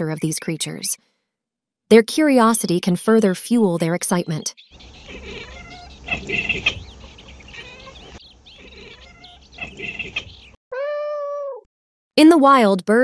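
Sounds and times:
cat chirping cries: 0:04.8 - 0:11.7.

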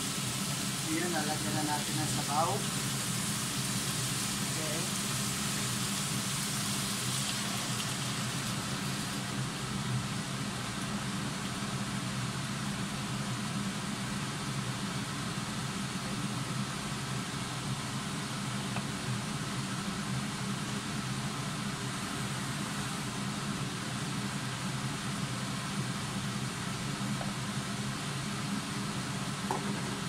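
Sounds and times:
stove humming and hissing: 0:00.0 - 0:30.0.

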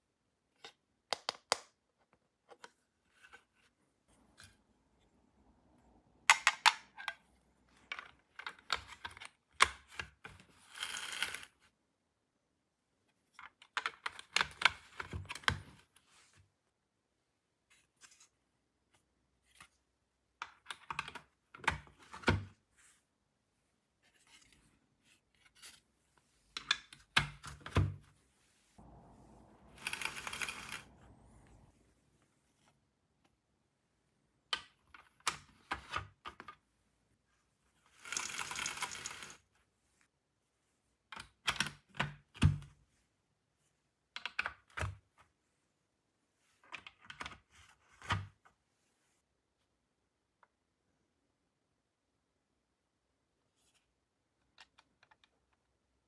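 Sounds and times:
plastic toy pieces clattering: 0:29.7 - 0:30.9.

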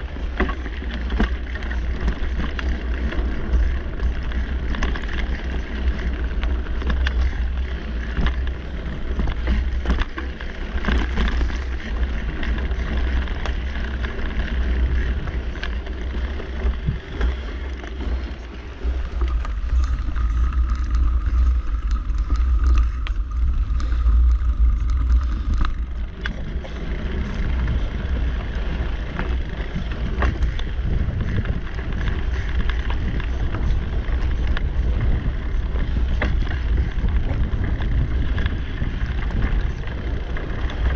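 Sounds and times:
bike rattles and clicks: 0:00.0 - 0:40.9
rush of bike tyres: 0:00.0 - 0:40.9
wind buffeting microphone: 0:00.0 - 0:40.9.

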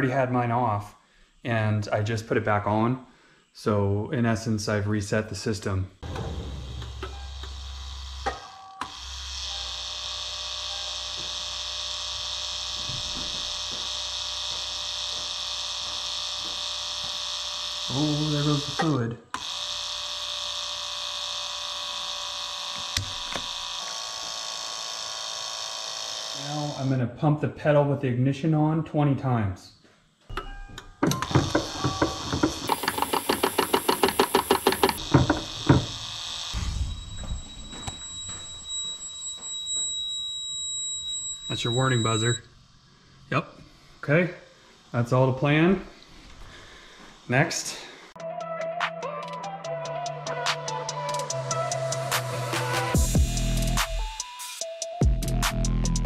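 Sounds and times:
pump motor high whine: 0:06.0 - 0:26.9, 0:31.0 - 0:42.5
brake booster clunks: 0:30.4 - 0:38.8
sharp clicks: 0:32.4 - 0:38.0
high hiss: 0:32.6 - 0:38.0.

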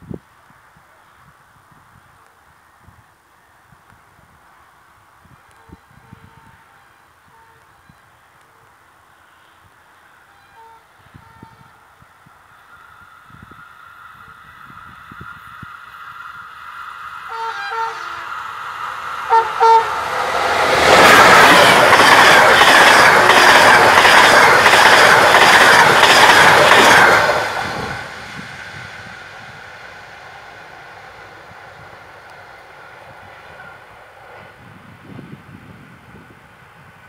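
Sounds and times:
train passing at speed: 0:04.1 - 0:37.0
train horn blasts: 0:05.5 - 0:08.1, 0:10.2 - 0:11.9, 0:17.3 - 0:18.5, 0:19.3 - 0:20.4
wheels clickety-clack over rail joints: 0:20.0 - 0:28.8.

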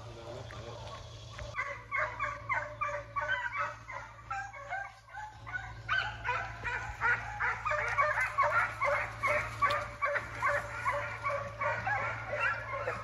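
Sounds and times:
hounds baying: 0:00.0 - 0:13.0.

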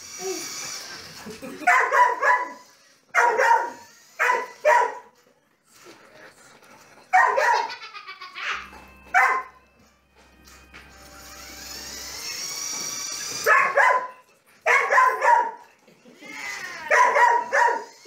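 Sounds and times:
dog barking: 0:01.7 - 0:02.6, 0:03.2 - 0:05.1, 0:07.1 - 0:07.7, 0:09.1 - 0:09.6, 0:13.4 - 0:15.6, 0:16.9 - 0:18.0.

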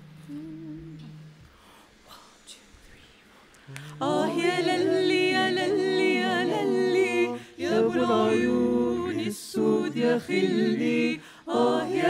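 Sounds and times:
a cappella choir singing in harmony: 0:03.8 - 0:12.0.

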